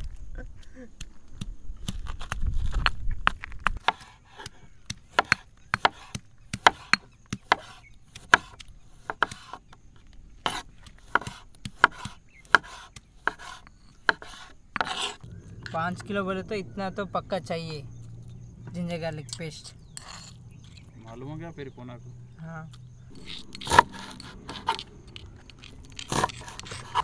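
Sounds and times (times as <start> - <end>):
low rumble: 15.2 - 27.0.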